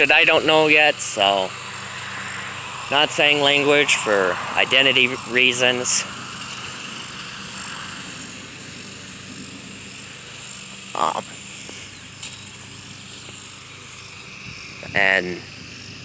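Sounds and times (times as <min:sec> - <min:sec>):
shrill chorus of insects: 0:00.2 - 0:16.0
short voice-like sound: 0:11.0 - 0:11.4.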